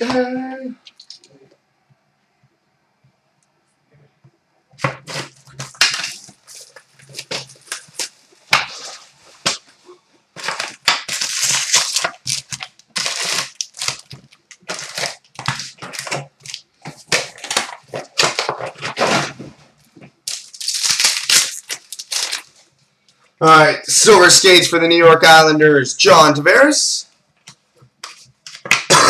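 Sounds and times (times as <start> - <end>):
foil packs rustling: 4.8 - 22.8
plastic wrap crinkling: 4.8 - 22.8.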